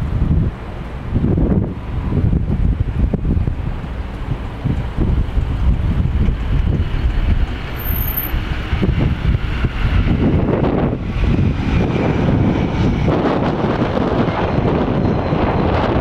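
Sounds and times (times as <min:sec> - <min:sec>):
jet engines deep rumble: 0:00.0 - 0:16.0
faint high whine: 0:07.7 - 0:08.4.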